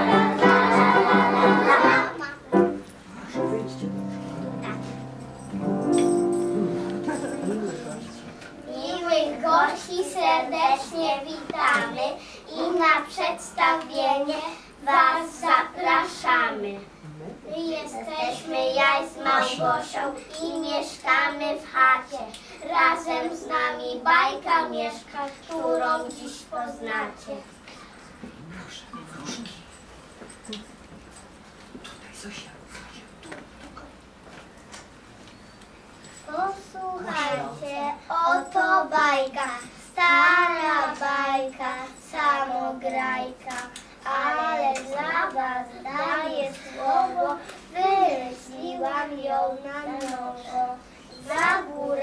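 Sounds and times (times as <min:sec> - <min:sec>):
young children singing in unison: 0:00.0 - 0:02.7, 0:08.2 - 0:16.7, 0:17.6 - 0:27.3, 0:37.0 - 0:52.0.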